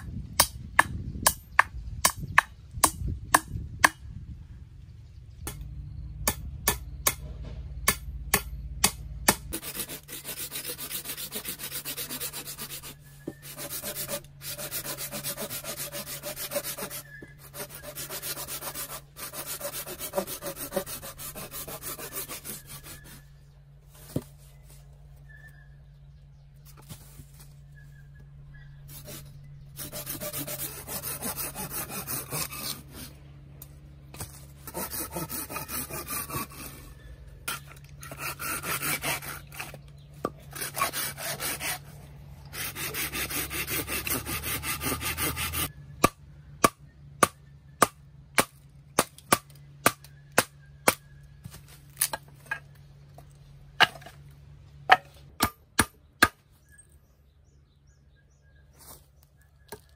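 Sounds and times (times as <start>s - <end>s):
hand saw cutting wood: 8.3s - 23.3s, 28.9s - 33.2s, 34.1s - 51.0s.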